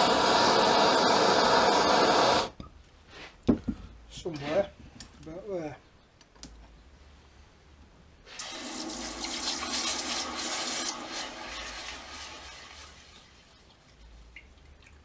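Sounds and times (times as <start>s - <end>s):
hot steel hissing in water: 0.0s - 2.6s, 8.3s - 13.5s.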